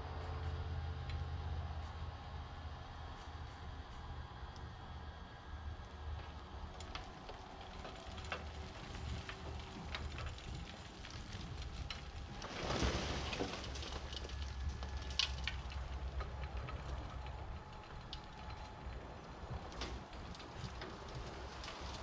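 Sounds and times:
dirt and stones pattering: 6.2s - 22.0s
dirt load sliding out: 7.4s - 18.2s.

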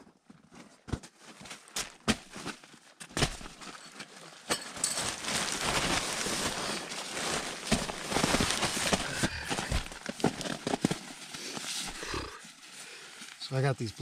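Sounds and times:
tent fabric rustling: 1.1s - 14.0s.

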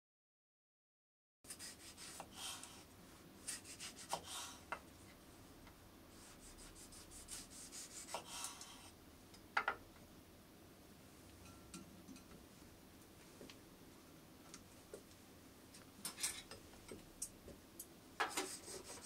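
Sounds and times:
knife sawing through tomatoes: 1.5s - 2.8s, 3.4s - 4.6s, 6.2s - 8.6s.

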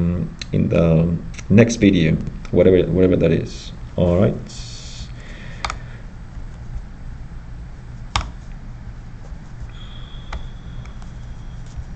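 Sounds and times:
low steady hum: 0.0s - 11.9s
computer mouse clicks: 8.1s - 8.4s
faint high steady tone: 9.7s - 11.9s.

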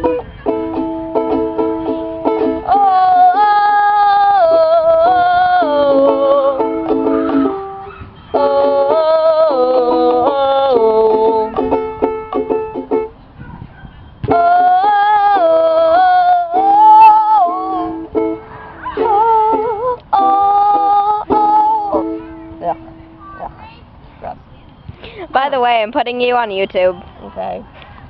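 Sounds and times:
girl singing: 0.0s - 12.0s, 14.3s - 23.7s
ukulele chords plucked: 0.0s - 13.2s, 14.3s - 23.2s.

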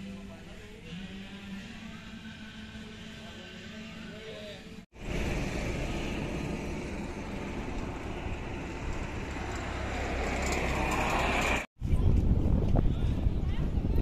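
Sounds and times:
vehicle road noise: 4.9s - 12.6s.

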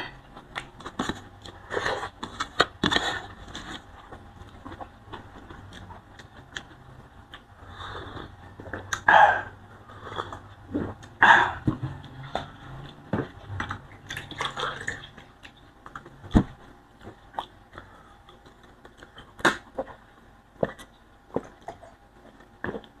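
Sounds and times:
chewing and mouth clicks: 4.4s - 7.5s.

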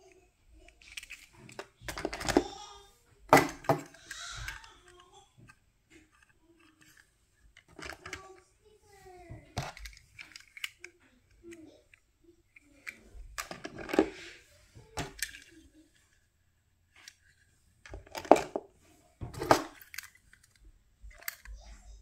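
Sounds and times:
toy cars clattering on plastic case: 0.6s - 8.4s, 9.3s - 10.8s, 12.8s - 15.6s, 17.0s - 21.6s.

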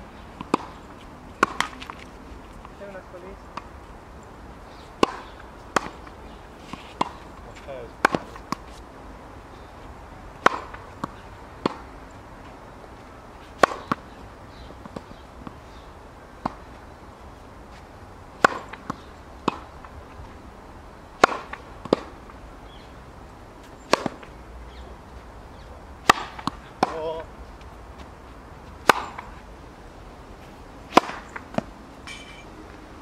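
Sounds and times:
tennis ball hit and bouncing: 0.4s - 2.1s, 5.0s - 8.8s, 10.4s - 12.0s, 13.6s - 14.2s, 16.4s - 16.8s, 18.4s - 20.0s, 21.2s - 22.3s, 23.8s - 24.4s, 26.0s - 27.3s, 28.8s - 29.4s, 30.9s - 32.5s.

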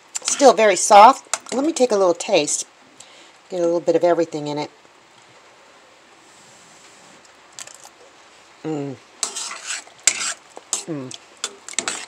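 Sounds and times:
metal spoon scraping a pot: 0.2s - 0.6s, 9.2s - 12.0s
person humming: 8.6s - 9.0s, 10.8s - 11.2s.

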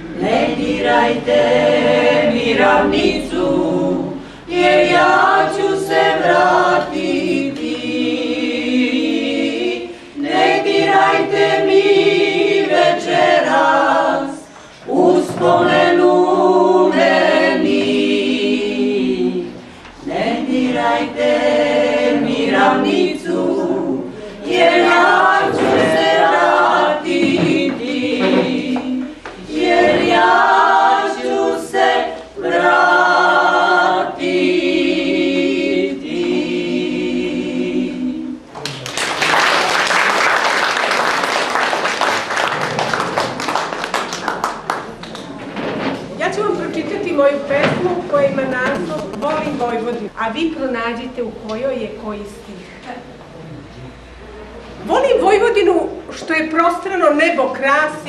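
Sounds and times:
women singing unaccompanied: 0.0s - 38.5s.

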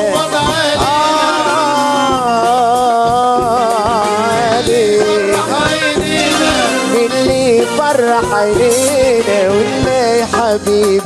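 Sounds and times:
band playing pop song: 0.0s - 11.0s
man singing ornamented note: 6.2s - 9.2s.

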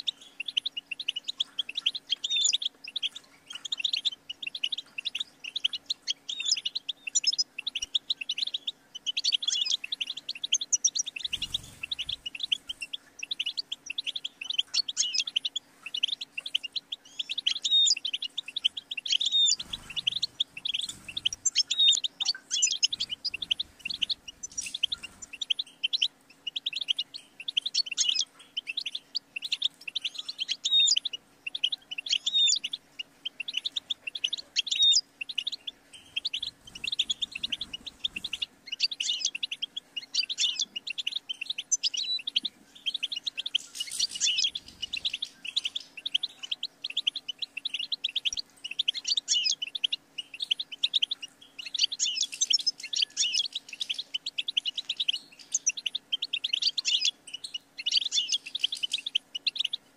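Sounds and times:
faint steady hum: 0.0s - 59.9s
goldfinch twittering song: 0.0s - 59.9s.

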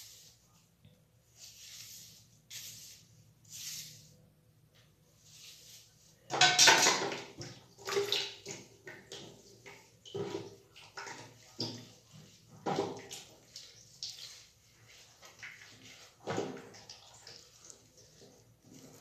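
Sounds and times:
wet splashing and squelching in hair: 6.6s - 19.0s.

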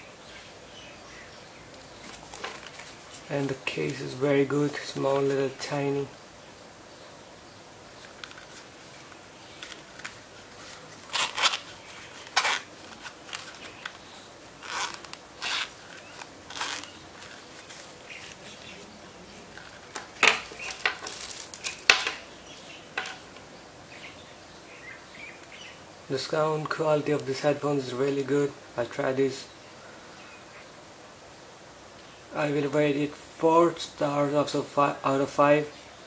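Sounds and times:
case clicks and rustles: 8.0s - 18.6s, 19.5s - 22.2s
zipper pulls: 14.6s - 17.4s.

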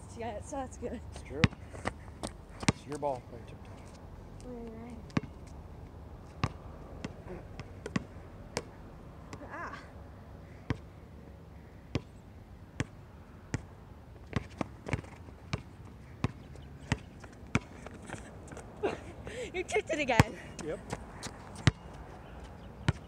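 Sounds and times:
basketball bouncing on hard court: 1.4s - 2.8s, 6.4s - 8.7s, 14.3s - 17.8s, 21.6s - 21.9s.

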